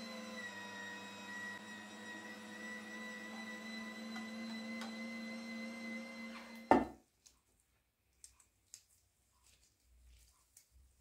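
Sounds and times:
appliance electric hum: 0.0s - 6.9s.

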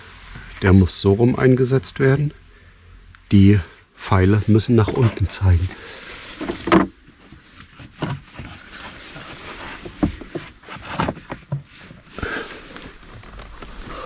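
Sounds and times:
air filter housing rustling: 4.5s - 14.0s.

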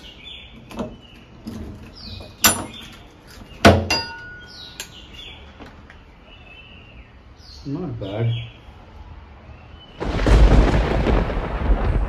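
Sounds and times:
faint bird chirps: 4.2s - 8.7s.

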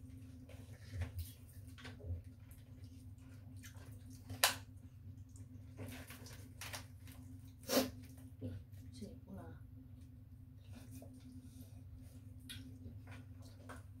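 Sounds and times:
low steady hum: 0.0s - 14.0s.

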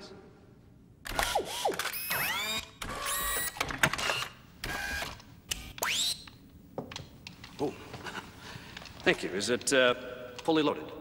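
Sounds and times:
electronic servo whirs: 1.2s - 6.2s.

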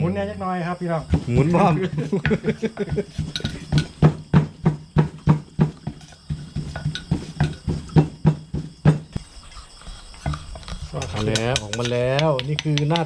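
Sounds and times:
wooden pestle pounding in mortar: 1.1s - 9.1s, 11.0s - 13.0s.

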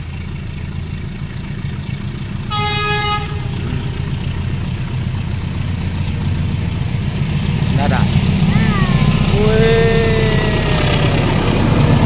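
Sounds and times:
locomotive engine rumble: 0.0s - 12.0s
locomotive horn blast: 2.5s - 3.8s.

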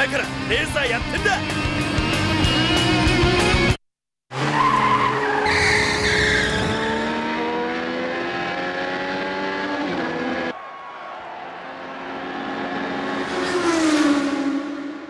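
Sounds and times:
race car engine accelerating: 4.3s - 10.5s, 11.5s - 15.0s
tyres squealing: 4.5s - 6.8s.

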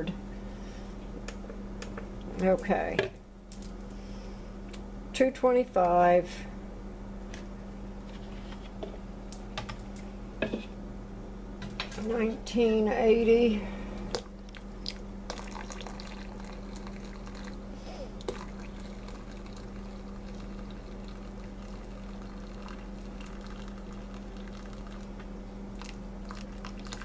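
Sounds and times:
water pouring into container: 15.3s - 17.6s, 18.2s - 25.1s, 25.8s - 27.0s.

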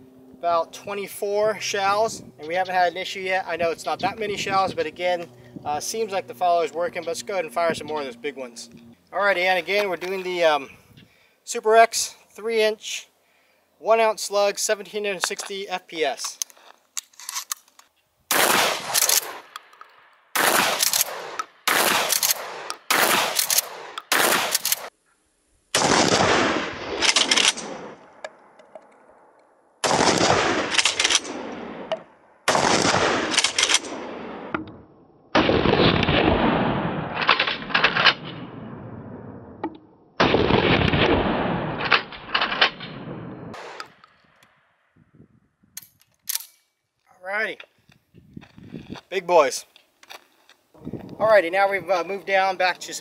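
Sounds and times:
shotgun pump being worked: 16.3s - 17.9s, 22.1s - 24.9s
shotgun shots: 18.3s - 19.6s, 20.3s - 24.9s, 25.8s - 28.1s, 29.8s - 34.6s, 35.4s - 38.9s, 40.2s - 44.0s.

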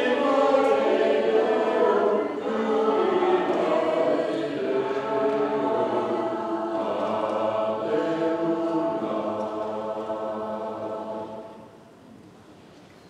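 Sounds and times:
church choir singing: 0.0s - 11.9s.

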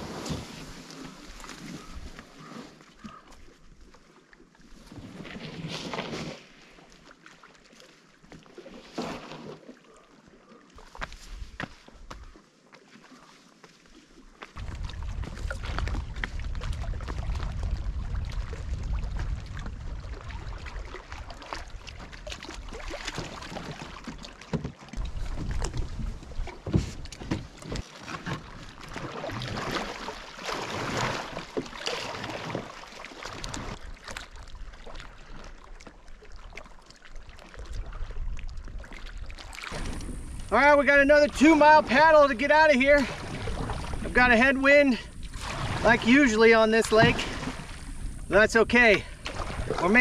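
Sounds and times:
water splashing around canoe: 0.0s - 50.0s
wind buffeting microphone: 14.6s - 22.0s, 42.8s - 44.4s, 46.9s - 50.0s.

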